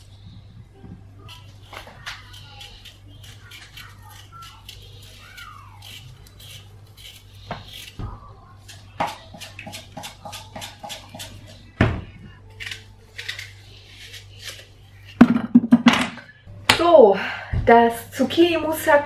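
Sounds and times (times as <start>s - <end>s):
steady low hum: 0.0s - 19.0s
knife cutting vegetables: 1.2s - 11.6s, 12.6s - 15.1s.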